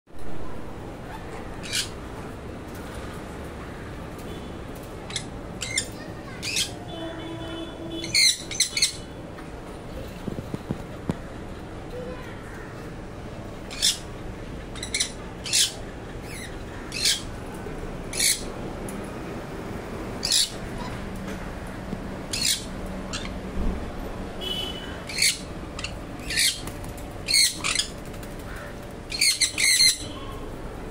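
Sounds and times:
parrots squawking: 1.0 - 2.1, 5.1 - 6.8, 7.9 - 9.1, 13.6 - 14.1, 14.7 - 17.3, 18.1 - 18.5, 20.2 - 21.0, 22.3 - 23.4, 24.8 - 30.3.

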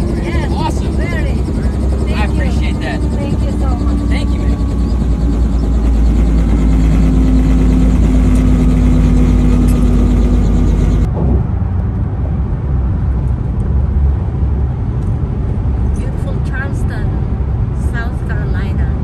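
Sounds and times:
helicopter engine and rotor drone: 0.0 - 13.7
car driving on highway: 0.0 - 19.0.

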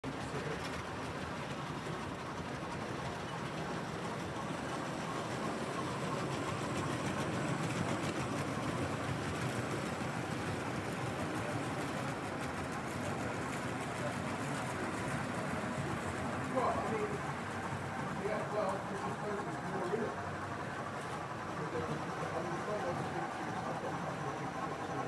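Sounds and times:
model train wheels rumbling: 0.0 - 25.0.

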